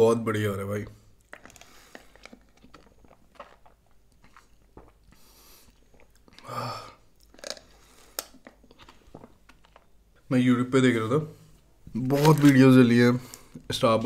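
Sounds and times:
wet mouth smacks and clicks: 7.2 - 9.8.

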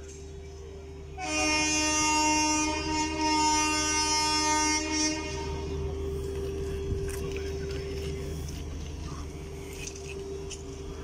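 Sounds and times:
machinery hum: 0.0 - 11.0
locomotive horn blast: 1.1 - 5.9.

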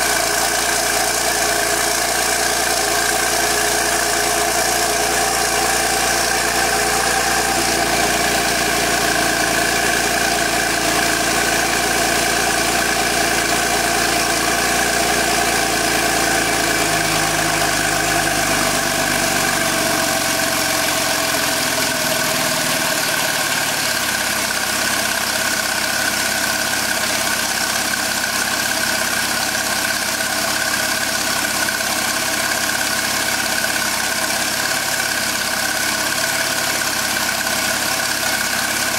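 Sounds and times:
car engine idling: 0.0 - 38.9.

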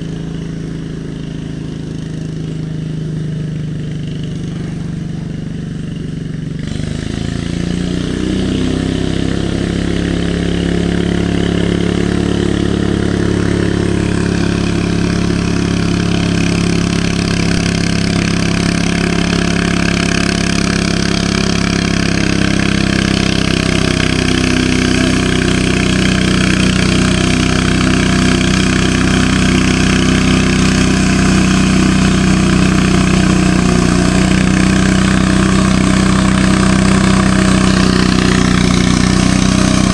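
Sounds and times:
garden tractor engine idling: 0.0 - 39.9.

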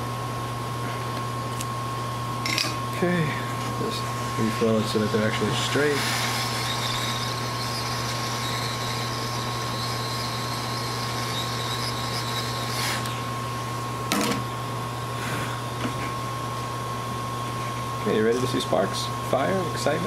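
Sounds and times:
steady low hum: 0.0 - 20.0
hot air blower hissing: 3.0 - 16.3.

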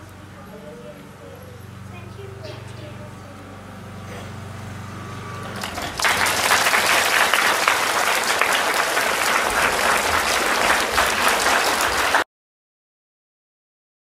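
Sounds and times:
children applauding: 5.5 - 12.3.

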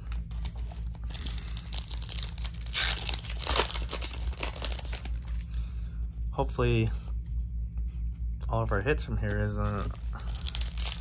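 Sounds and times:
plastic wrapper crinkling and ripping: 0.0 - 5.5, 9.7 - 11.0.

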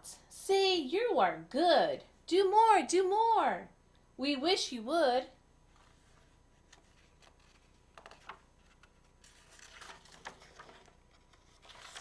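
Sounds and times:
book pages turning: 5.7 - 12.0.

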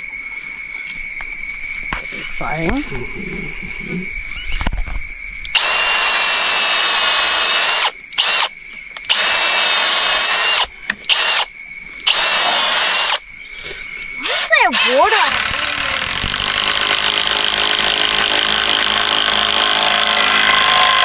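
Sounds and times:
drill trigger blips: 5.5 - 11.5, 12.1 - 13.2, 14.2 - 21.0
power drill whining: 5.5 - 13.2, 14.2 - 21.0.

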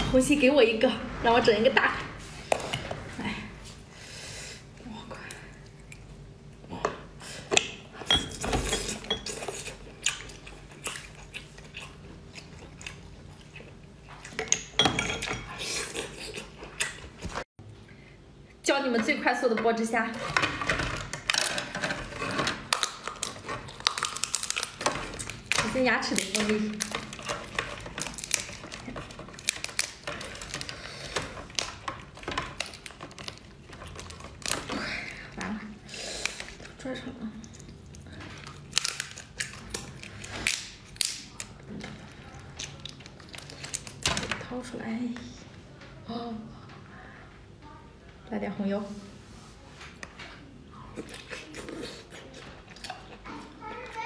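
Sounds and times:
biting and chewing: 8.6 - 14.8, 21.1 - 35.4, 37.4 - 44.1, 50.9 - 54.0
lobster shell cracking: 22.6 - 34.8, 38.4 - 41.7.

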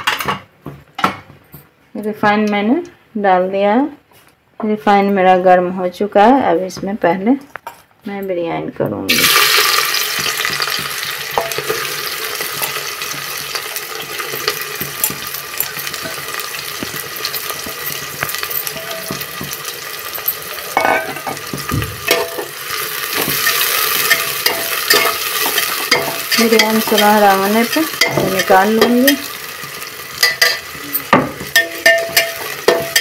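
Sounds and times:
oil popping and crackling: 9.1 - 33.0
onions sizzling in oil: 9.1 - 33.0.

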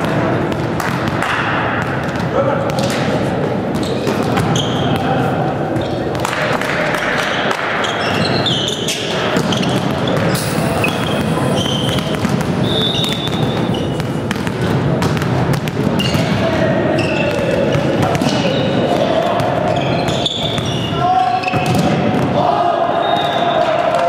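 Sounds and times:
volleyball bouncing and slapped: 0.0 - 3.1, 10.9 - 16.5
players' voices: 0.0 - 24.0
short high squeaks: 19.8 - 21.6.

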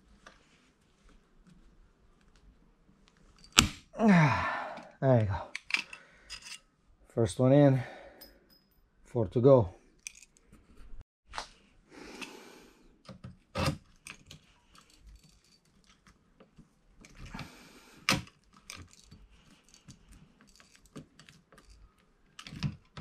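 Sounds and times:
small metallic clicks and rattles: 10.0 - 10.6, 13.0 - 17.4, 18.1 - 23.0.

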